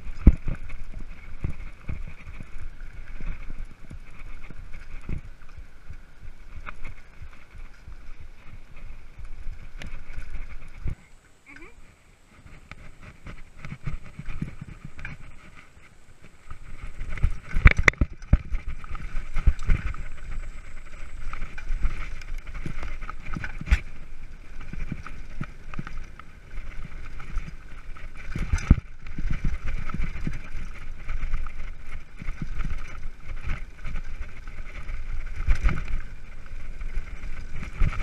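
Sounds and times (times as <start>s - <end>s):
bike rattling over rough trail: 0.0s - 38.0s.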